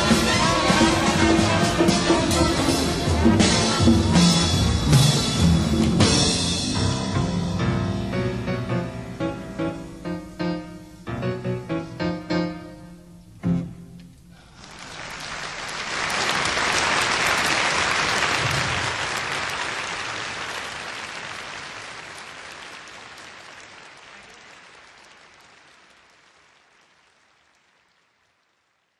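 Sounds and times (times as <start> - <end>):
audience applauding: 0.0 - 3.8, 14.5 - 28.9.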